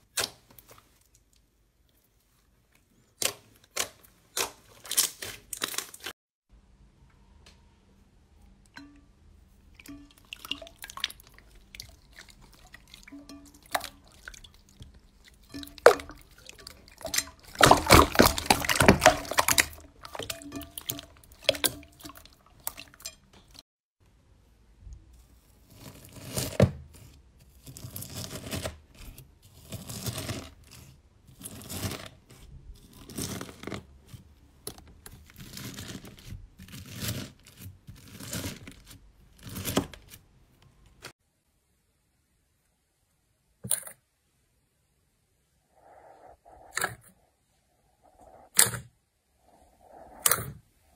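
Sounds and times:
slime squelching: 9.4 - 23.6, 45.7 - 50.9.

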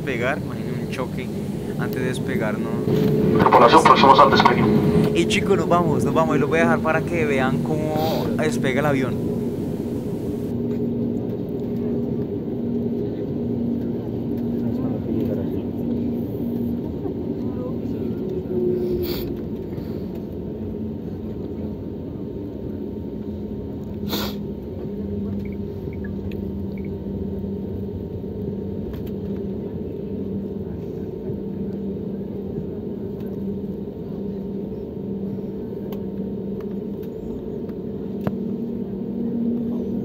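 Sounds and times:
jet engines rumbling in cabin: 0.0 - 10.5.

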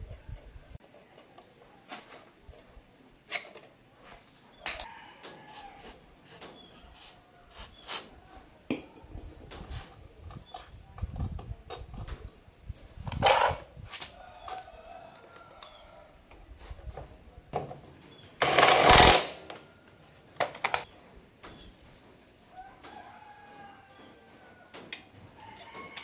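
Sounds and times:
impact wrench burst: 18.4 - 19.4.

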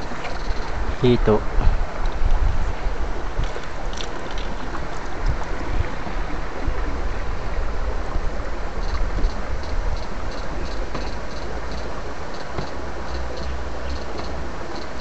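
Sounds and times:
faint rhythmic ticking: 0.0 - 2.4, 8.2 - 15.0
stream water rushing: 0.0 - 15.0.

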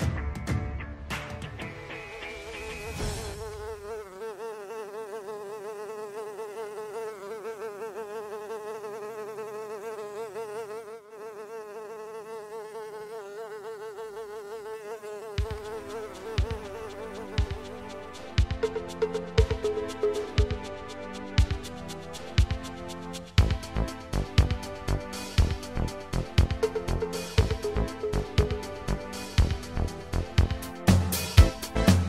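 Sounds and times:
knocking beat: 15.4 - 32.0.

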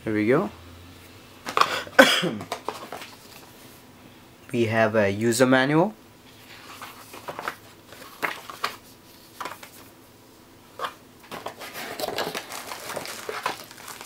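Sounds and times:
paper rustling: 2.4 - 3.5, 6.4 - 9.9, 10.8 - 14.0
anti-static bag crinkling: 11.2 - 14.0.

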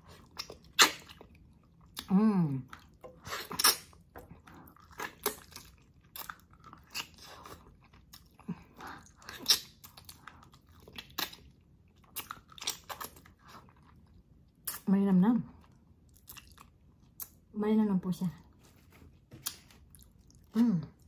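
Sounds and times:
person chewing and biting: 0.0 - 2.1, 2.7 - 14.8, 16.1 - 17.4.

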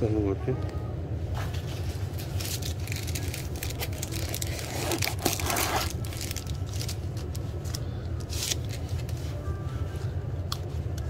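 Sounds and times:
plastic cup crinkling: 2.1 - 9.2.

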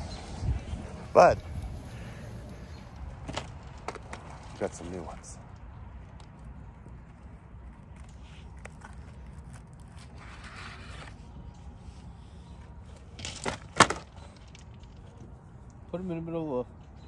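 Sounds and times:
wrapping crinkling and tearing: 8.3 - 10.3.

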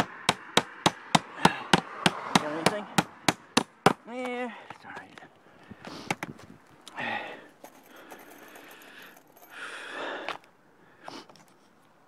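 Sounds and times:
soft breathing: 4.5 - 11.7.

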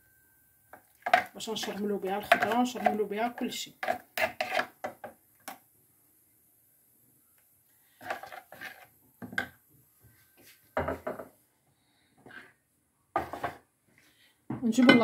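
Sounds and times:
spoon scraping plastic bowl: 1.0 - 5.0, 8.0 - 9.0, 13.2 - 13.6.

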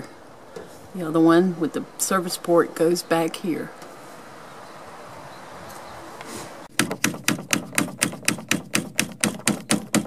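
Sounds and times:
rapid hammer taps on metal: 6.7 - 10.0.

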